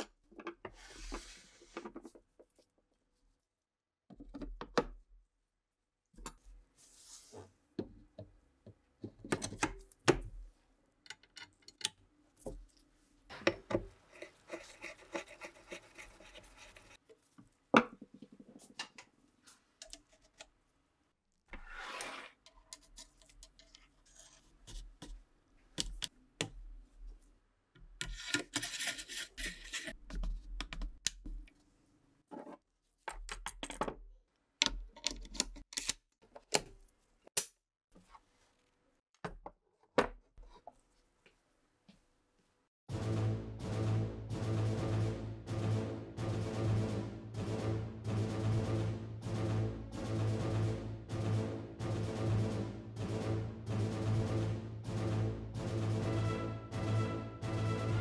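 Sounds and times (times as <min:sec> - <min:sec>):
metal band rubbing on wood: 0:14.0 - 0:17.0
screwdriver scraping a screw: 0:14.1 - 0:17.0.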